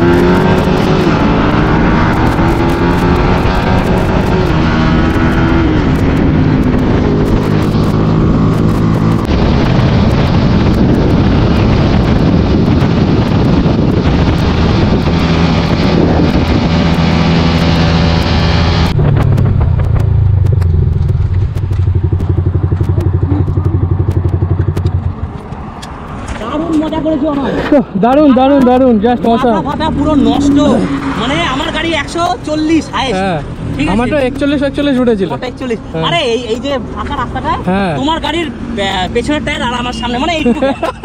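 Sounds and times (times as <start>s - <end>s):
motorcycle engine at high revs: 0.0s - 25.3s
wind noise: 0.0s - 34.8s.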